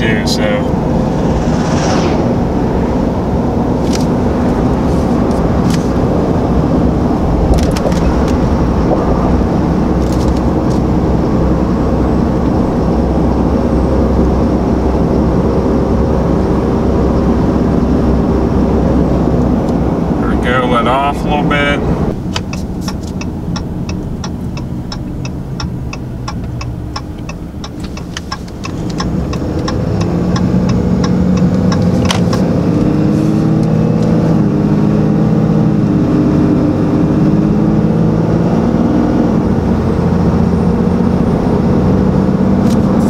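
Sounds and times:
diesel engine under load: 2.3s - 43.0s
turn signal ticking: 22.2s - 32.8s.

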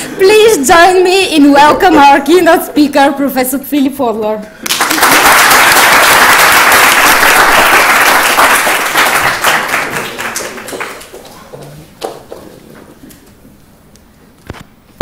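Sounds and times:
audience applauding: 4.6s - 12.7s.

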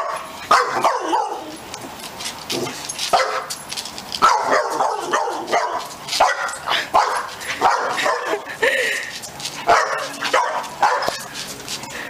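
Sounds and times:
puppy yapping barks: 0.0s - 1.5s, 3.1s - 3.5s, 4.2s - 8.5s, 9.6s - 11.3s.

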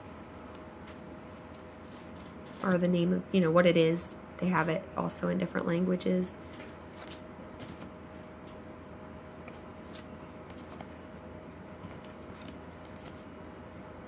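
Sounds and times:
faint steady hum: 0.0s - 14.0s
cards sliding and clicking: 9.5s - 10.9s, 12.0s - 13.2s.

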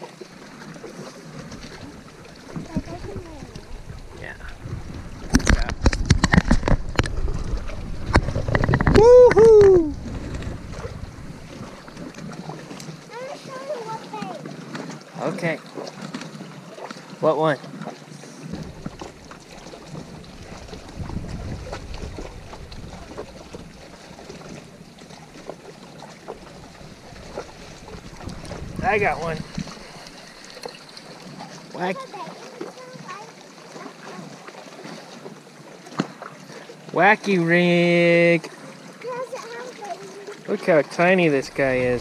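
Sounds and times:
waves lapping against rocks: 0.0s - 42.0s
wind buffeting microphone: 1.5s - 12.7s, 18.4s - 30.6s, 41.3s - 42.0s
boy crying out: 9.0s - 10.0s.

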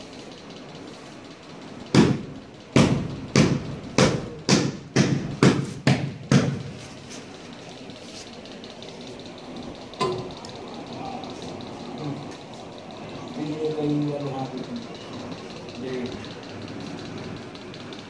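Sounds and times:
sharp ringing knocks: 1.8s - 6.8s.

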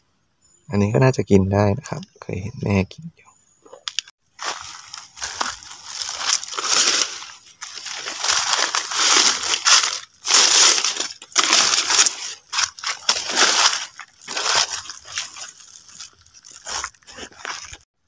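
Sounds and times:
undergrowth rustling: 3.8s - 17.9s
footsteps crunching dry leaves: 4.3s - 17.9s.

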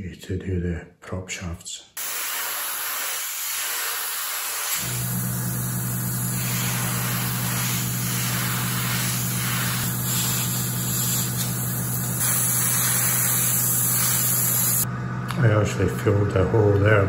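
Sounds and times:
airbrush hissing: 2.0s - 14.9s
air compressor motor humming: 2.0s - 15.6s.

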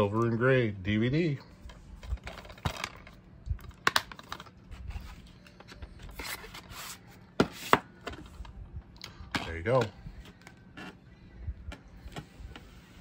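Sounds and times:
plastic case snap: 3.7s - 4.4s.

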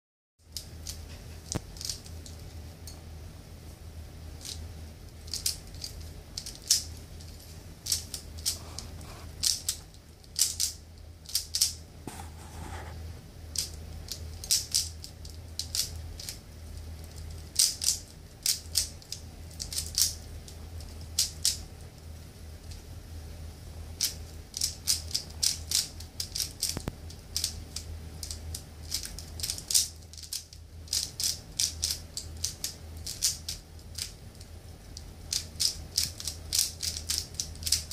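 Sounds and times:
steady low hum: 0.4s - 37.9s
puzzle cube plastic clicks: 17.1s - 20.2s, 24.0s - 34.2s, 34.9s - 37.9s.

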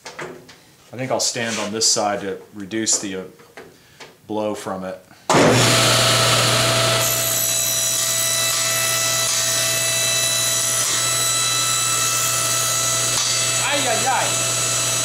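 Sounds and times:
saw blade cutting wood: 5.3s - 15.0s
table saw motor hum: 5.4s - 15.0s.

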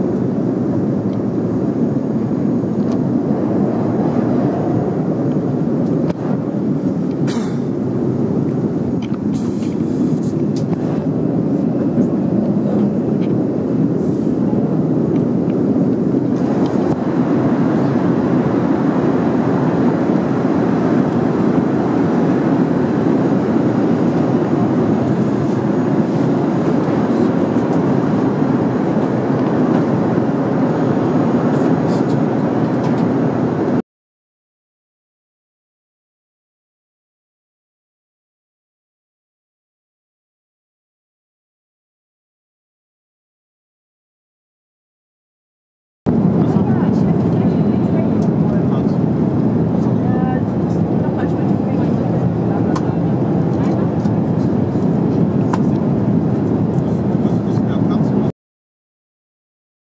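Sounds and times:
airliner cabin engine rush: 0.0s - 33.8s, 46.1s - 58.3s.

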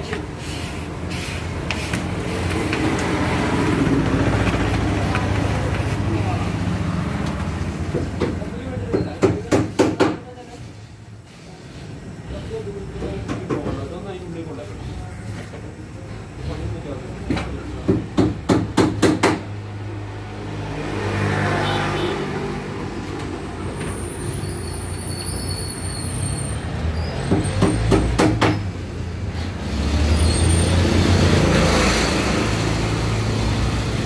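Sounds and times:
sharp knocks: 17.3s - 19.5s.

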